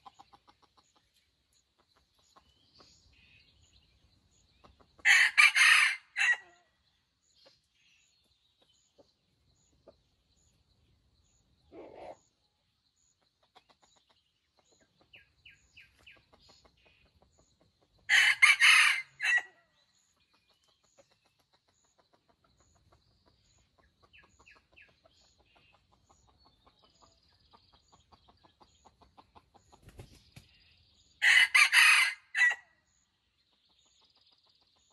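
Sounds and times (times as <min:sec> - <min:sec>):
rooster crowing: 0:05.1 - 0:06.5, 0:18.1 - 0:19.5, 0:31.2 - 0:32.6.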